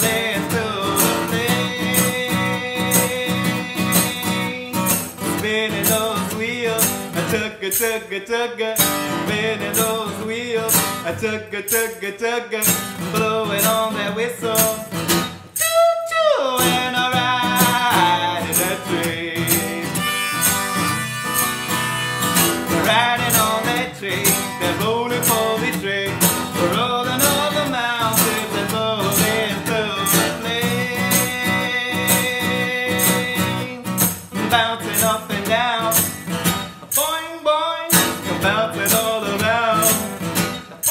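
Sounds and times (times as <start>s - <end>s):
acoustic guitar strumming: 0.0s - 40.9s
harmonica held notes: 19.5s - 23.5s.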